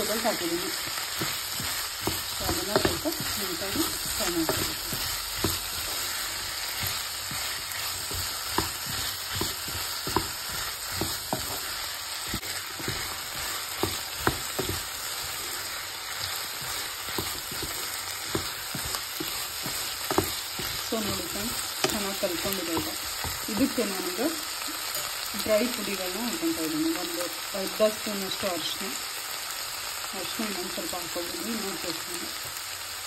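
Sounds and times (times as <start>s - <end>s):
wooden spatula scraping a pan: 0.0s - 25.8s
vegetables sizzling in oil: 0.0s - 33.0s.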